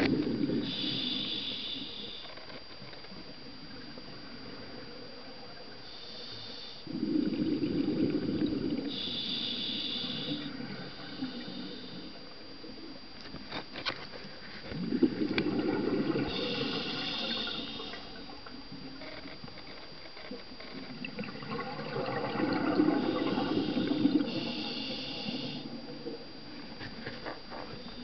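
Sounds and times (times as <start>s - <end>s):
regulator breathing hiss: 0.0s - 2.5s, 5.8s - 7.1s, 8.8s - 12.3s, 16.2s - 18.2s, 23.0s - 25.8s
exhaled bubbles rushing: 14.8s - 16.4s, 21.0s - 24.3s.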